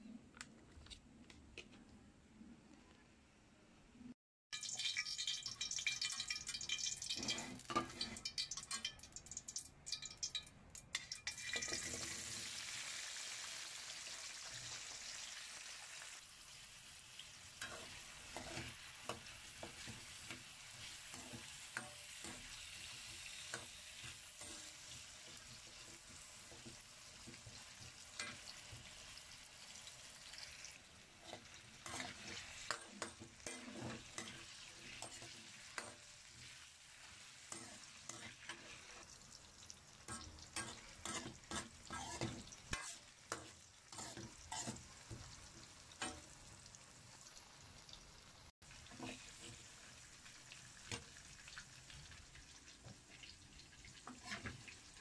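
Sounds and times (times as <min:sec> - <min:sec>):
vegetables sizzling in hot oil: 0:04.6 - 0:55.0
metal ladle scraping wok: 0:07.1 - 0:08.9, 0:17.6 - 0:22.6, 0:31.2 - 0:36.0, 0:40.1 - 0:44.9, 0:54.1 - 0:54.6.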